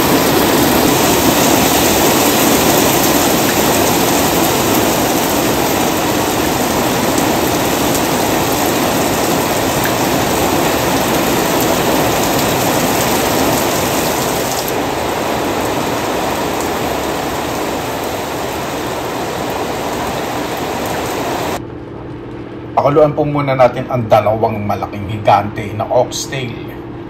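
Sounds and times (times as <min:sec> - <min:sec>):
heavy rain pouring: 0:00.0 - 0:21.6.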